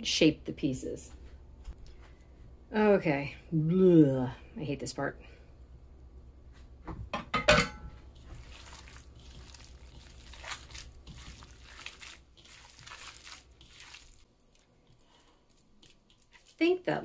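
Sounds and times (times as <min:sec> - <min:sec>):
hands kneading wet meat mix: 0:08.1 - 0:17.0.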